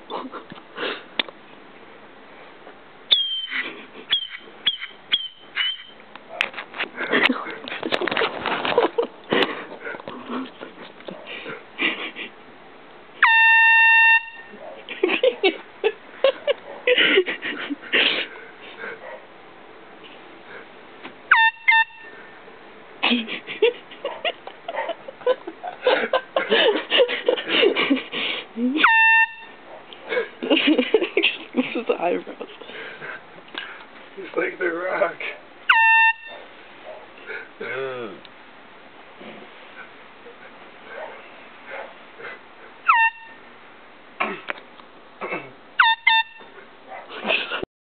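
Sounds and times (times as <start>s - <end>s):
air horn blasts: 13.2s - 14.5s, 21.3s - 22.3s, 28.8s - 29.6s, 35.7s - 36.4s, 42.9s - 43.4s, 45.8s - 46.6s.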